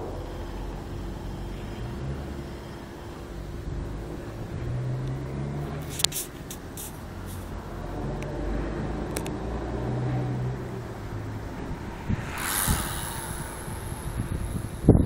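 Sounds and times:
distant truck diesel engine: 0.0s - 15.0s.

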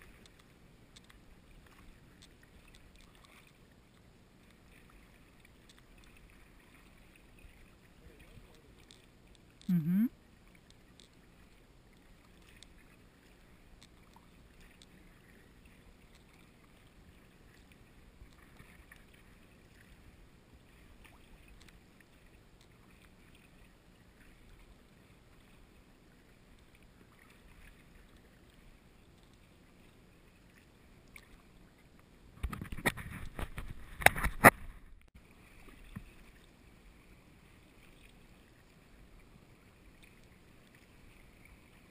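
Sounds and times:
kayak paddle splashing water: 4.4s - 9.2s, 10.4s - 24.6s.

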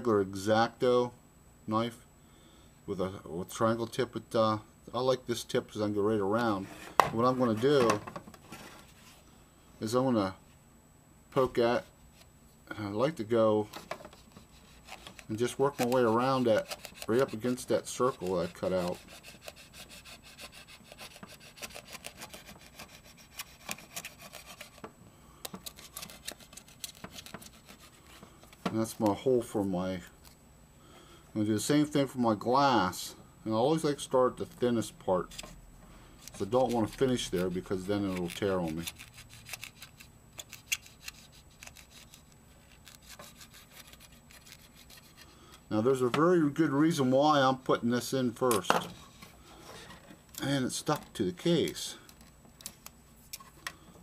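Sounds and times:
knife cutting foam: 14.3s - 24.8s, 36.4s - 45.2s.

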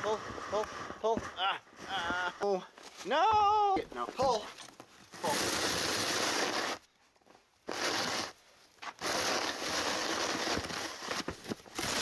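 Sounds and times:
snow shovel scraping snow: 0.0s - 3.1s, 4.1s - 6.9s, 7.6s - 12.0s.

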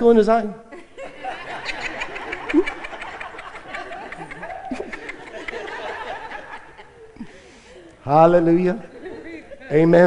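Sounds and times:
crowd laughing and chattering: 0.8s - 10.0s.

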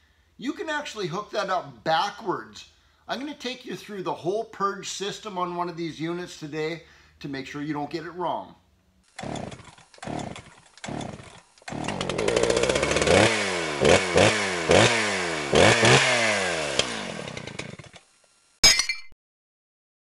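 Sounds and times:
two-stroke engine revving: 9.1s - 18.0s.

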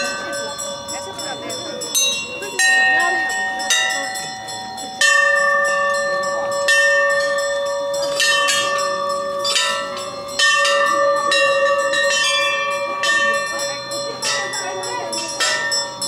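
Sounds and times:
brass bells ringing: 0.0s - 16.0s.

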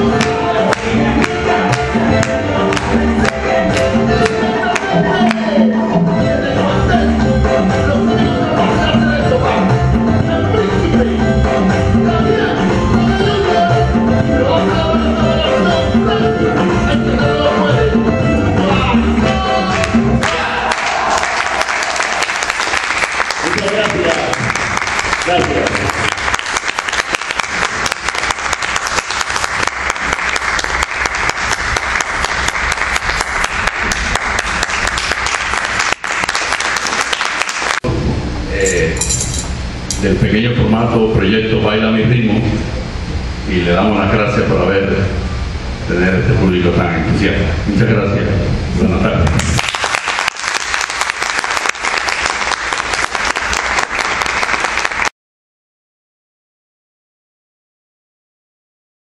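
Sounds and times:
audience applauding: 0.2s - 5.4s, 19.7s - 37.8s, 49.4s - 55.1s.

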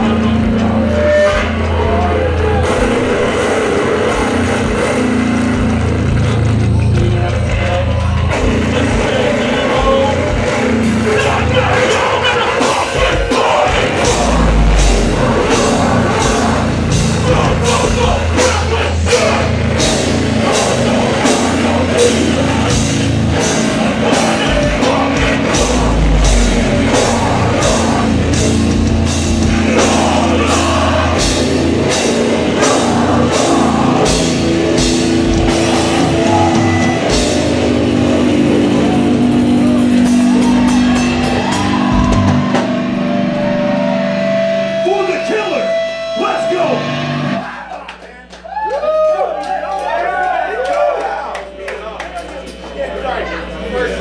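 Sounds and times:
deep low bass note: 0.0s - 8.8s, 13.7s - 45.1s
punk band playing live: 0.0s - 50.3s.

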